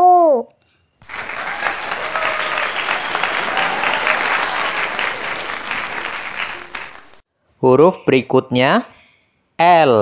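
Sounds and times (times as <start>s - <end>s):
crowd applauding: 1.0s - 7.2s.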